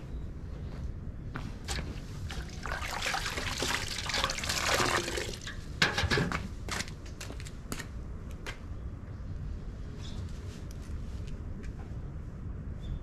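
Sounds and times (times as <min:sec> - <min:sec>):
water splashing and pouring: 0:02.3 - 0:05.7.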